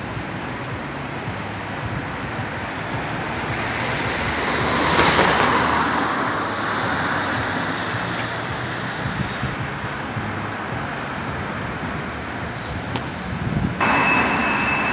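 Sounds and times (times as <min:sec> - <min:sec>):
car passing close by: 0:02.9 - 0:09.2.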